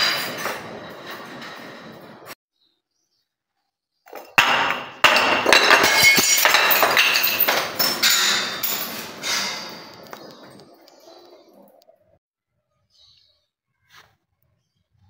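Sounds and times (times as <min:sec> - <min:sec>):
bottle knocking on stone steps: 0:04.1 - 0:08.9
clinking shards and beads: 0:04.1 - 0:10.6
glass breaking: 0:04.1 - 0:10.6.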